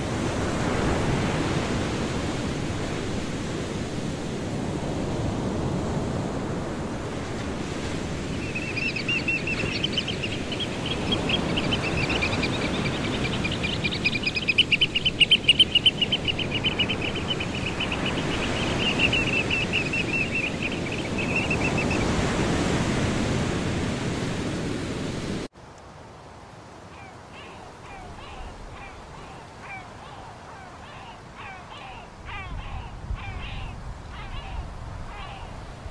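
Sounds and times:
surf washing on shore: 0.0 - 35.9
oystercatcher piping: 8.3 - 22.1.

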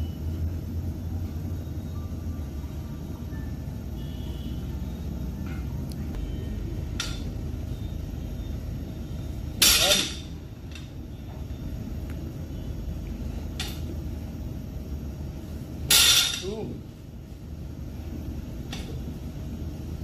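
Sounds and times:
steady low hum: 0.0 - 20.0
barbell dropping on floor: 9.6 - 10.3, 15.9 - 16.5.

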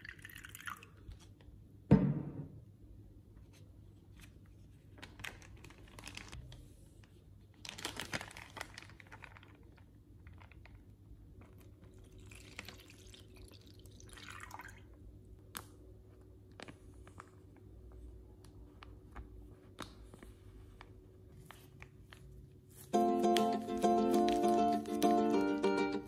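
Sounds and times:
liquid sloshing and dripping in bag: 0.0 - 1.5, 4.9 - 6.5, 7.5 - 15.8
plastic bag crinkling: 4.8 - 6.5, 7.5 - 13.3.

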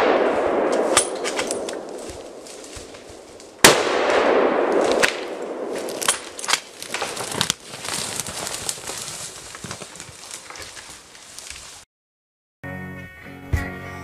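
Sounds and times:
sharp crack: 0.0 - 10.8
dry twigs snapping: 0.7 - 3.5, 4.7 - 11.8
loud rustling: 4.8 - 11.8.

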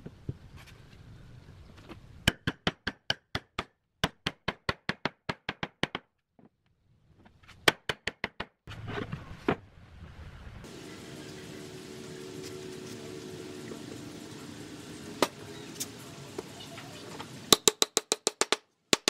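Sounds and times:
sharp wooden knocks: 17.5 - 19.0.

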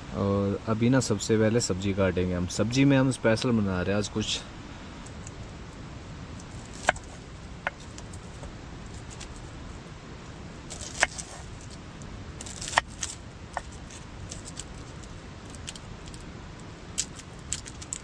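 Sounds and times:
low background noise: 0.0 - 18.0
onion skins crackling: 5.1 - 18.0.

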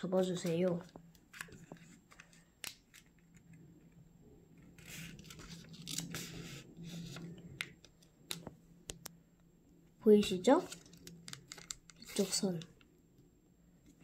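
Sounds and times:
paper rustling and crinkling: 4.6 - 8.5, 10.2 - 12.7.

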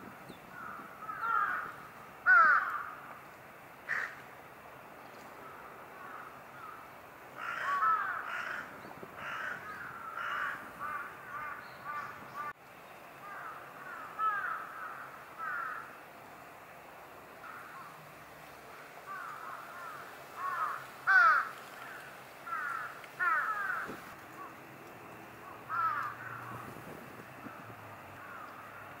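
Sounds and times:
bulbuls squawking: 25.3 - 28.9.

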